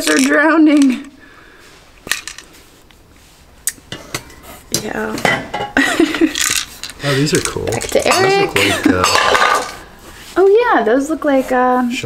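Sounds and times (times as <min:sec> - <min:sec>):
ceramic and glass clinking: 0:03.9 - 0:09.8.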